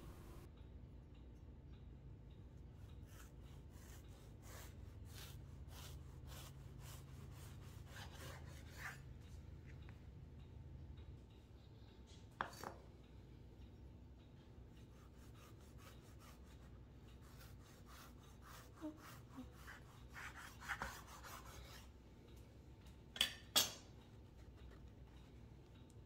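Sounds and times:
knife sawing through sponge: 3.1 - 9.0, 15.0 - 21.8.

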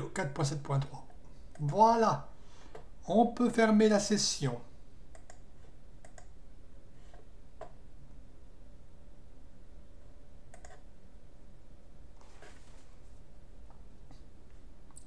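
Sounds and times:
faint background hum: 0.0 - 15.0
computer mouse clicks: 5.1 - 6.3, 10.5 - 10.9.

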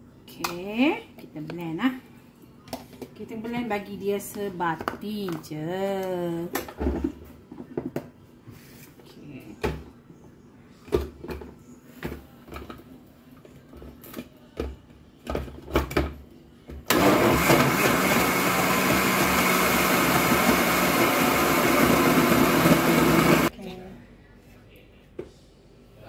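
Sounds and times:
blender motor running: 16.9 - 23.5.

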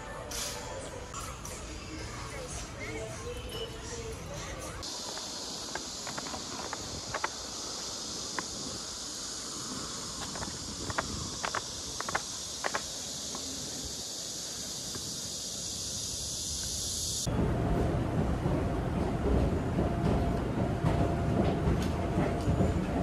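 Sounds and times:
insects chirping: 4.7 - 17.3.

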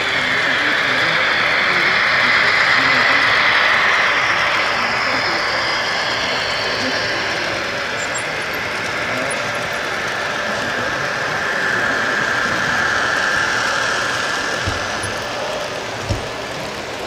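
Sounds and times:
electric motor whine: 0.0 - 17.0
model train wheels clattering: 6.2 - 17.0.

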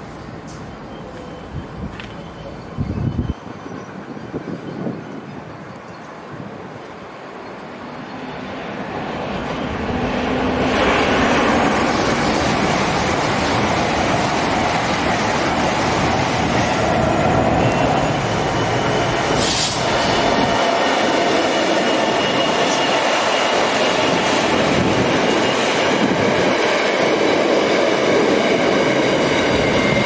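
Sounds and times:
high-speed train passing: 0.0 - 30.0
short high hiss: 19.4 - 20.1.

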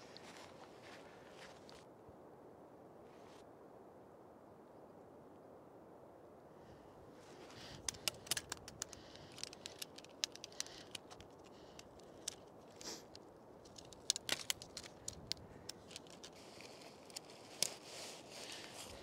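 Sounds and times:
faint hiss: 2.9 - 13.6
light clicks and small rattles: 7.2 - 17.9.

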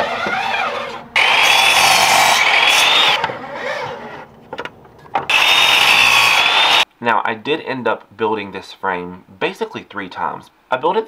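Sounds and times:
miter saw cutting wood: 0.0 - 4.3, 5.3 - 6.8.

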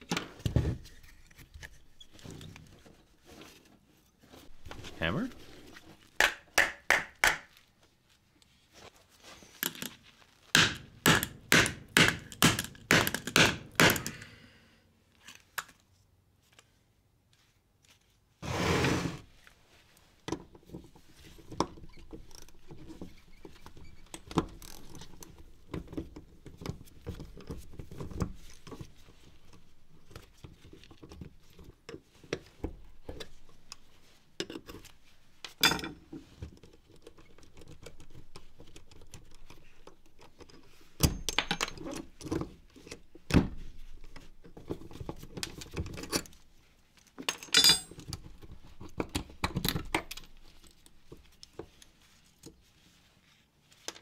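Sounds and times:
plastic and metal parts clattering: 20.3 - 46.4.

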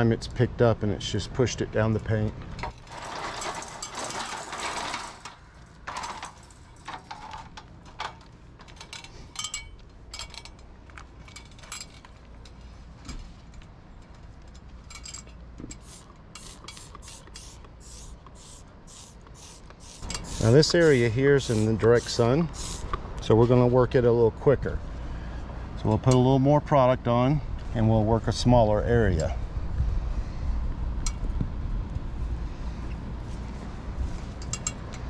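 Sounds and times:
trigger spray bottle spraying: 15.8 - 22.9.

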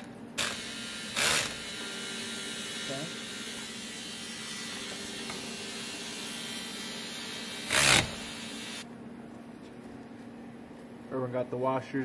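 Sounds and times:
cordless electric ratchet running: 0.0 - 8.8
workshop hum: 0.0 - 12.0.

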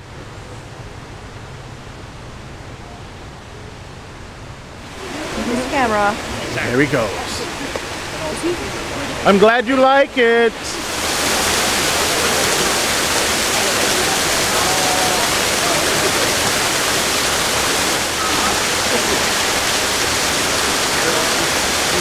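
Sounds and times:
rushing water: 4.8 - 22.0.

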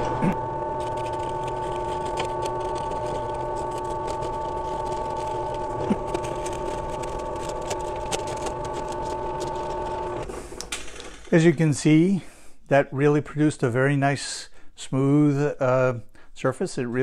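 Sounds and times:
drill press motor whine: 0.0 - 10.7.

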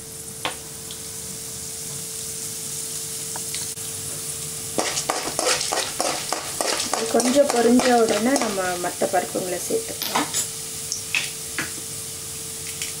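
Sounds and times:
lentils sizzling in hot oil: 0.0 - 13.0
spatula scraping pan: 4.8 - 8.8.

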